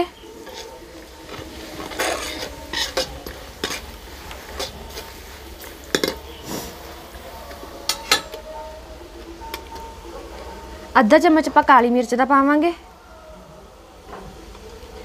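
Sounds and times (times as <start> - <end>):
masala frying: 0.0 - 15.0
ladle scraping metal pan: 0.3 - 7.0.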